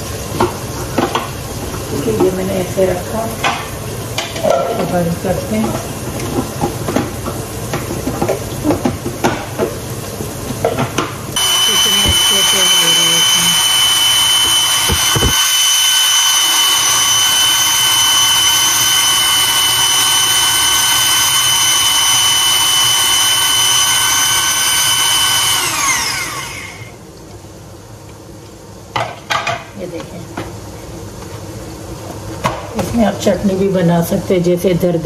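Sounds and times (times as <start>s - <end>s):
food chopper motor whining: 11.4s - 27.0s.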